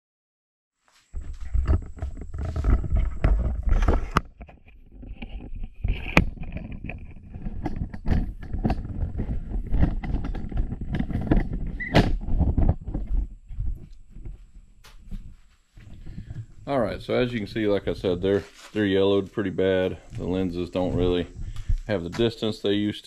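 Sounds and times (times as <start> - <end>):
wind on microphone: 4.9 - 18.1, 20.0 - 22.2.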